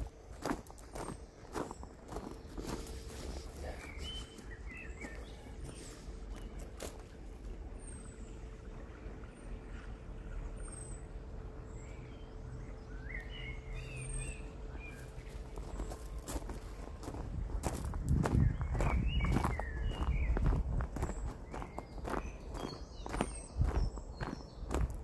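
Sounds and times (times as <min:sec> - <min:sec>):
faint hum: 0:00.0 - 0:25.0
low background rumble: 0:00.0 - 0:25.0
bird chirps: 0:00.4 - 0:06.6, 0:11.8 - 0:25.0.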